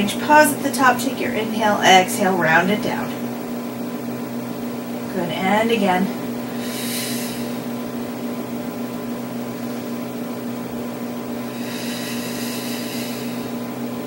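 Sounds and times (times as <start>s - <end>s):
machine hum: 0.0s - 14.0s
person breathing: 6.5s - 7.6s, 11.5s - 13.6s.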